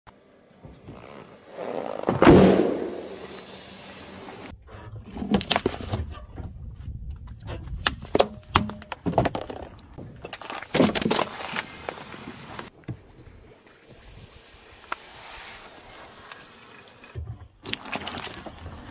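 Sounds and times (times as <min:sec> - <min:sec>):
car tyre crushing objects: 0:07.9 - 0:12.7.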